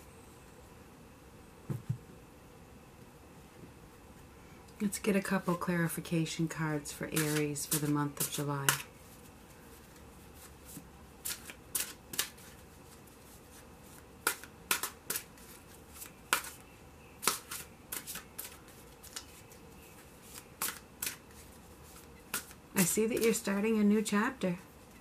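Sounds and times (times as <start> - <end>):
cards being shuffled: 7.0 - 16.6, 17.2 - 23.6.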